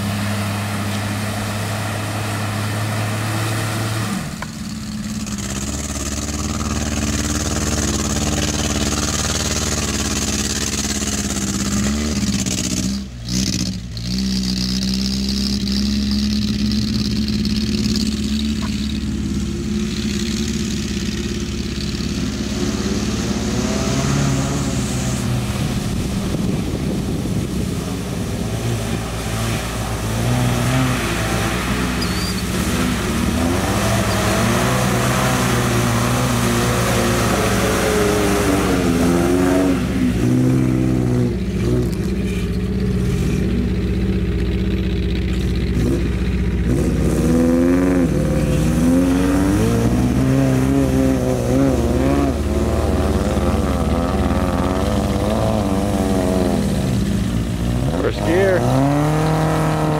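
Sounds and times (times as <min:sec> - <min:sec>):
pickup engine revving: 0:00.0 - 0:59.9
tyres churning through mud: 0:00.0 - 0:59.9.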